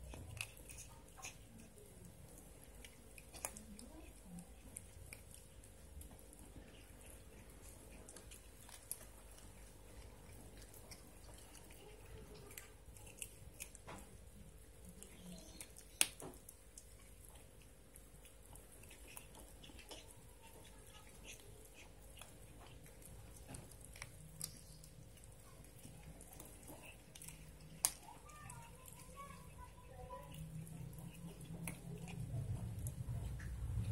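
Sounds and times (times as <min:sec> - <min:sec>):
cat chewing wetly: 0:00.0 - 0:33.9
teeth clicking on bone: 0:00.0 - 0:33.9.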